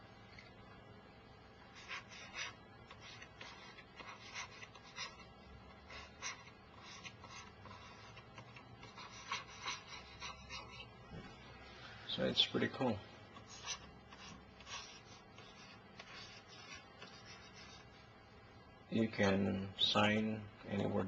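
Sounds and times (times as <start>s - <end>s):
pen tip scratching on screen: 5.9s - 10.9s.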